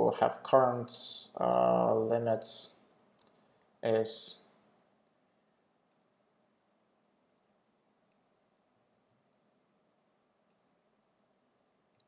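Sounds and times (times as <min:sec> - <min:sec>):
keyboard and mouse clicks: 0:01.4 - 0:02.2, 0:03.2 - 0:03.7.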